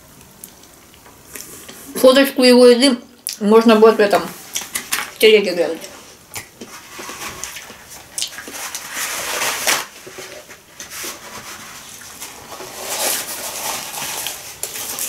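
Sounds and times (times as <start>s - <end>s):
paper towel tearing and rustling: 4.5s - 15.0s.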